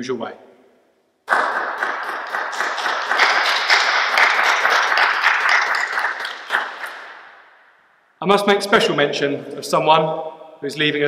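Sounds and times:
crowd clapping: 0:01.3 - 0:07.5.

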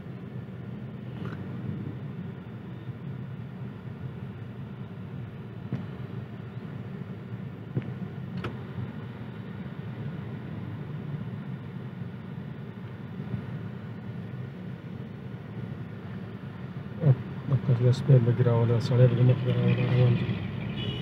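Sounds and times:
car cabin hum: 0:00.1 - 0:09.6.

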